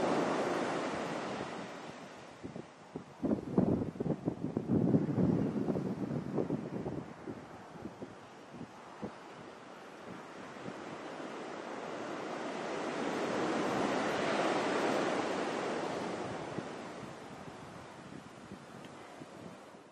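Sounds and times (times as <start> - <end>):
ocean wave breaking: 0.0 - 2.4, 8.8 - 18.0
wind buffeting microphone: 0.0 - 19.8.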